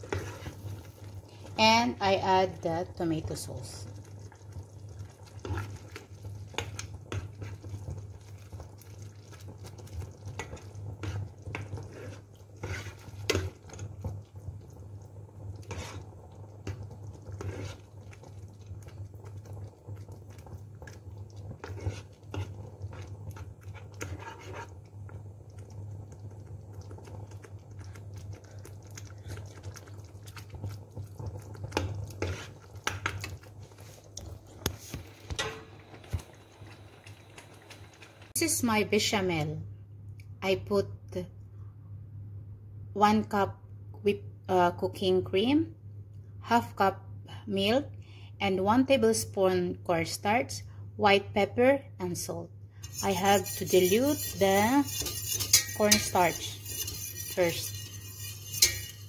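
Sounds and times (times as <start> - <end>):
spoon stirring thick sauce: 0.0 - 1.6, 3.8 - 35.1, 52.8 - 59.0
steady low hum: 50.6 - 59.0
spoon clinking against pot: 52.9 - 59.0.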